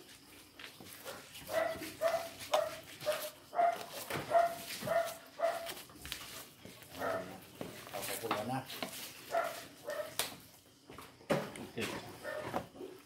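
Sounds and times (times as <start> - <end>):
dog barking: 1.0 - 5.8, 7.0 - 7.4, 9.3 - 10.2, 12.2 - 12.6.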